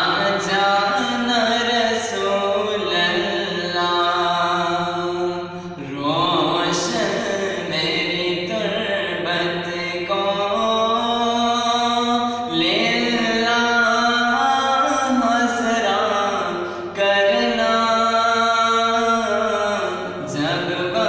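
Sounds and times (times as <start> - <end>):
man chanting: 0.0 - 21.0
breaths: 5.4 - 5.9, 16.6 - 16.9.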